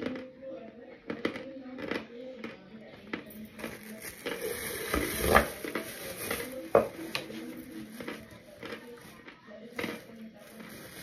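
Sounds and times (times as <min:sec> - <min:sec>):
mouth chewing with squishes: 0:07.2 - 0:10.0.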